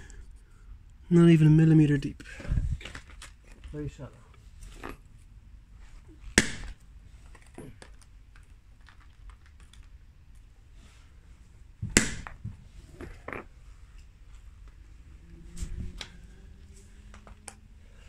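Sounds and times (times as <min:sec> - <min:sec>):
hammer striking resin block: 0:11.9 - 0:12.4.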